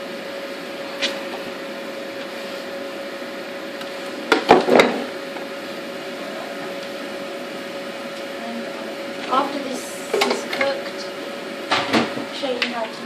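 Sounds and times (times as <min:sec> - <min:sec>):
appliance hum: 0:00.0 - 0:13.0
kitchen items clattering: 0:10.0 - 0:10.8.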